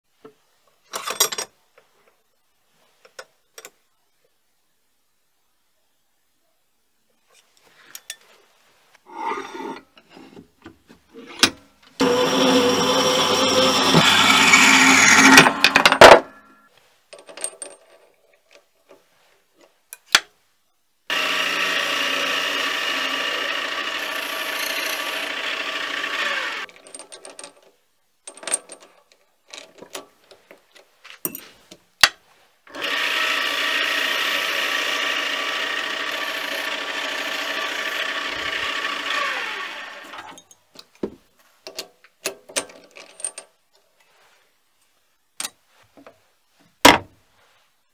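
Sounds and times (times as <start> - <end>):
lathe motor running: 12.0 - 15.6, 21.1 - 26.6, 32.8 - 40.2
bandsaw cutting steel: 12.0 - 16.3, 21.1 - 26.7, 32.7 - 40.4.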